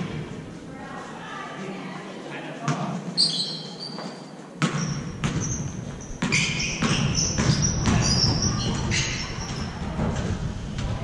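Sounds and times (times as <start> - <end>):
sneakers squeaking on floor: 2.7 - 10.3
basketball bouncing on hardwood: 4.6 - 9.0.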